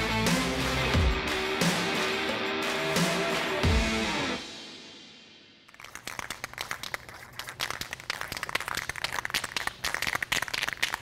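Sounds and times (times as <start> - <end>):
spray paint can rattling: 5.7 - 11.0.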